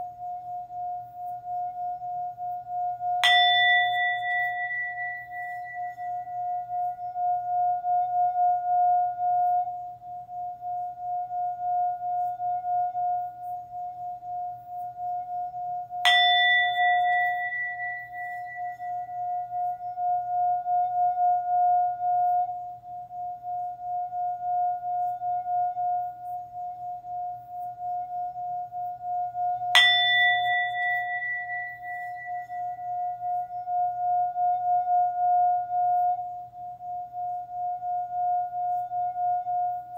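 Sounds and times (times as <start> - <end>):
singing bowl sustained tone: 0.0 - 39.9
singing bowl strike ringing: 3.0 - 13.3, 16.0 - 22.6, 29.0 - 39.9.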